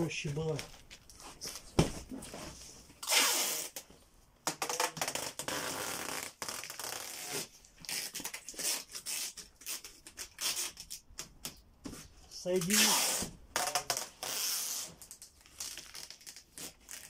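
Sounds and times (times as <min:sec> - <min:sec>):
tape rubbed onto cardboard box: 0:03.0 - 0:03.8, 0:05.0 - 0:11.0, 0:11.9 - 0:17.0
packing tape pulled off roll: 0:03.0 - 0:11.6, 0:12.5 - 0:17.0.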